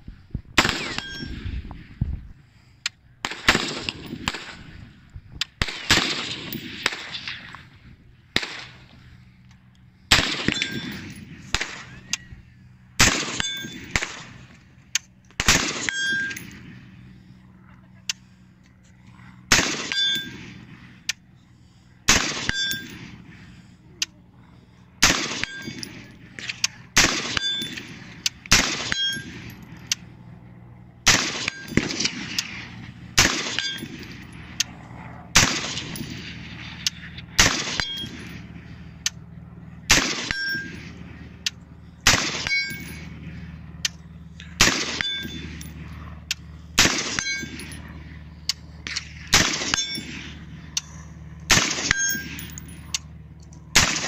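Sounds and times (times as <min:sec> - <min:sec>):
carbine gunshots: 0:00.6 - 0:01.3, 0:03.2 - 0:04.8, 0:05.6 - 0:07.5, 0:10.1 - 0:12.0, 0:13.0 - 0:14.5, 0:15.4 - 0:16.7, 0:19.5 - 0:20.8, 0:22.1 - 0:23.2, 0:25.0 - 0:29.6, 0:31.0 - 0:34.6, 0:35.3 - 0:38.4, 0:39.9 - 0:41.2, 0:42.0 - 0:43.3, 0:44.5 - 0:45.8, 0:46.8 - 0:47.8, 0:48.8 - 0:50.6, 0:51.5 - 0:52.8, 0:53.7 - 0:54.0.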